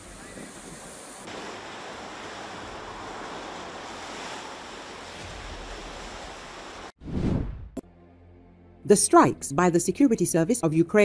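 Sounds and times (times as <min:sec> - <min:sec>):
sea waves breaking on rocks: 0:00.0 - 0:07.0.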